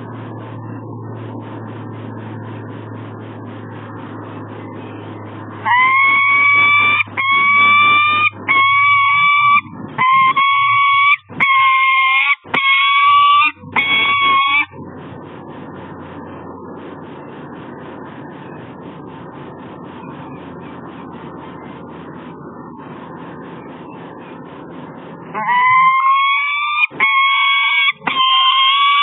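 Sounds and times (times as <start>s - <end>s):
falcon calling: 5.6s - 14.7s, 25.3s - 29.0s.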